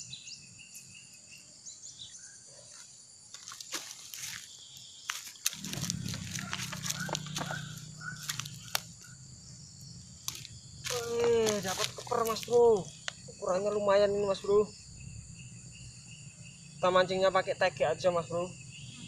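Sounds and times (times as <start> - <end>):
high insect buzzing: 3.3 - 13.5.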